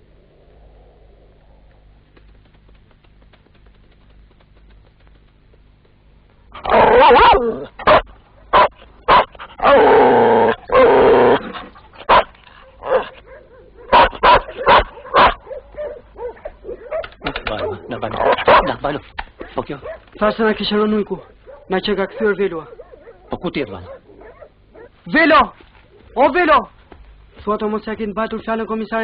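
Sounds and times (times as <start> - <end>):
dogs barking: 6.6 - 9.9, 10.5 - 25.2.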